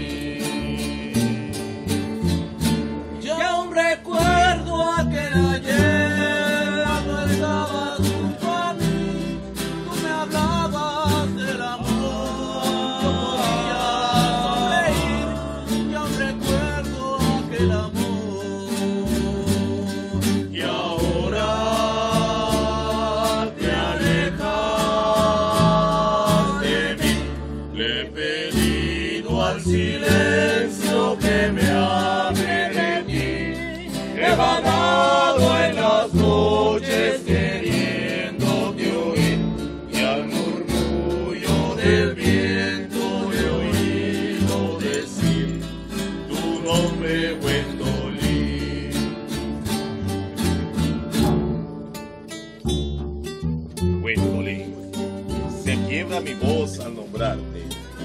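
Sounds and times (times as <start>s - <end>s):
group of voices singing: 0.0s - 2.4s, 3.6s - 50.2s
acoustic guitars strummed: 0.0s - 58.0s.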